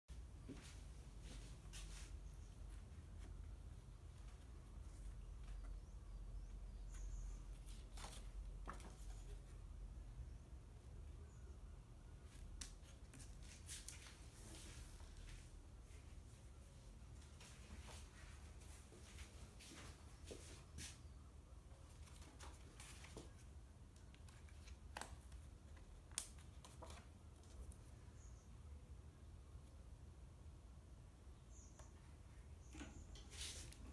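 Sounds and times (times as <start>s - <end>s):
soft taps and paper movement: 0.4s - 9.6s, 12.2s - 15.5s, 21.8s - 27.9s
paper rustling: 6.9s - 9.6s, 21.9s - 27.9s.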